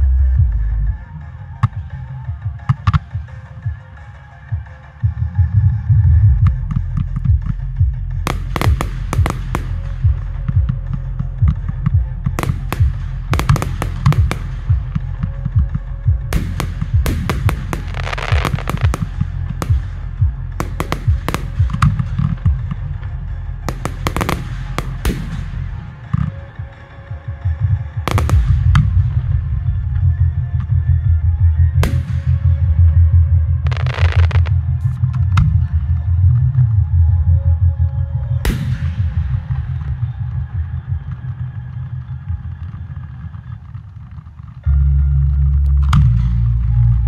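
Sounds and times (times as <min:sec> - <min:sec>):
loud music with heavy bass: 0:00.0 - 0:37.2
fireworks bursting and crackling: 0:08.2 - 0:26.8, 0:28.0 - 0:29.2, 0:33.7 - 0:35.0.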